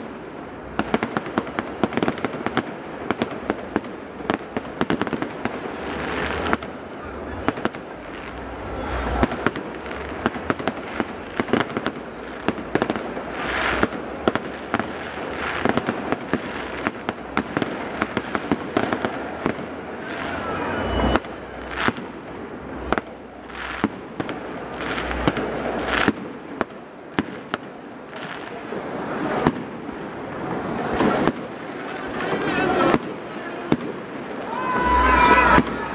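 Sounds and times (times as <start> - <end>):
fireworks bangs: 0.0 - 35.9
fireworks crackling: 0.0 - 35.9.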